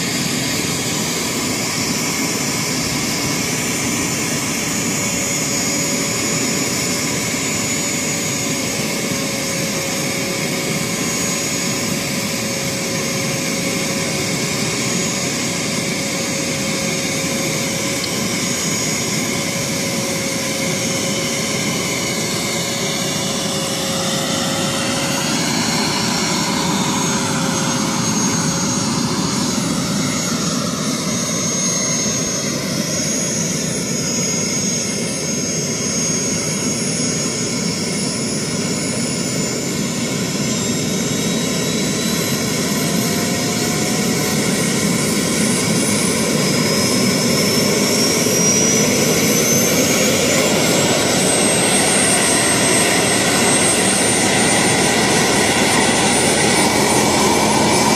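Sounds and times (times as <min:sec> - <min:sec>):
model helicopter engine whine: 0:00.0 - 0:57.9.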